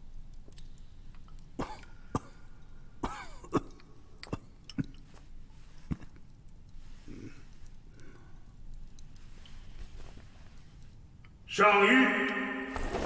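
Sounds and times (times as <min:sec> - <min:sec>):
man clearing throat and coughing: 0:01.6 - 0:02.4, 0:03.0 - 0:05.0.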